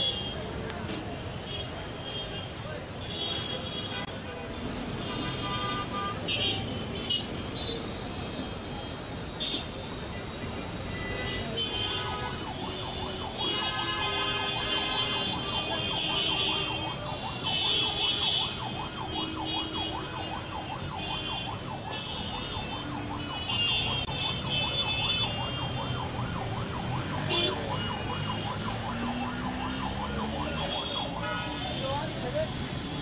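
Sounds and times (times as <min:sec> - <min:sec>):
low rumble of traffic: 0:00.0 - 0:33.0
siren warbling: 0:25.6 - 0:31.2.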